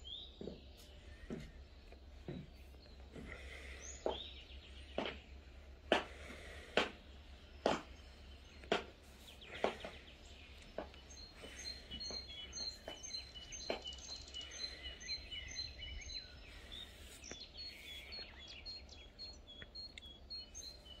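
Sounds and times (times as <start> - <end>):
songbirds chirping: 0.0 - 21.0
high heels clicking on stone: 7.6 - 8.0.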